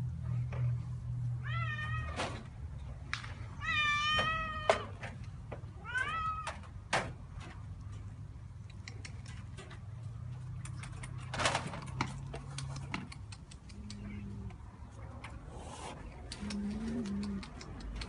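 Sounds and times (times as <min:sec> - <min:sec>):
cat meowing: 0:01.4 - 0:02.2, 0:03.6 - 0:04.9, 0:05.8 - 0:06.6.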